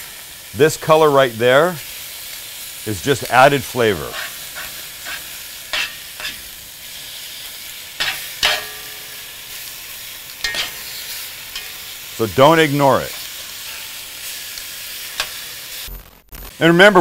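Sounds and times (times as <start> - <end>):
meat sizzling in a pot: 0.0 - 17.0
metal tongs clinking on pot: 4.1 - 6.4, 8.0 - 9.6, 10.4 - 12.0, 15.2 - 15.4.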